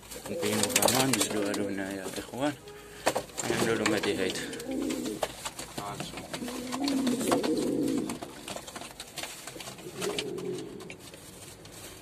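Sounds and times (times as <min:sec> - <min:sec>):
birds scuffling in box: 0:00.0 - 0:12.0
pigeon cooing: 0:00.2 - 0:02.2, 0:03.6 - 0:05.3, 0:06.0 - 0:08.7, 0:09.6 - 0:11.2.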